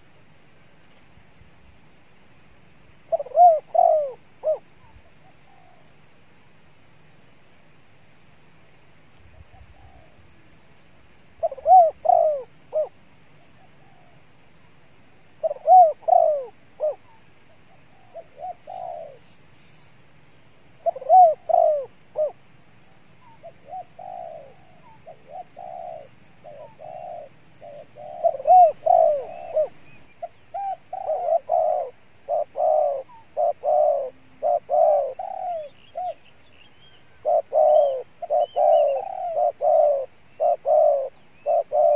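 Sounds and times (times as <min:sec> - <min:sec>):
dove cooing: 0:03.0 - 0:05.9, 0:09.3 - 0:10.3, 0:11.3 - 0:14.2, 0:15.3 - 0:19.4, 0:20.8 - 0:41.9.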